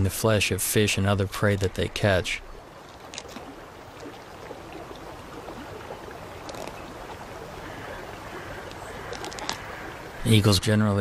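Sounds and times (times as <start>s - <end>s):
shallow river rushing: 0.0s - 10.4s.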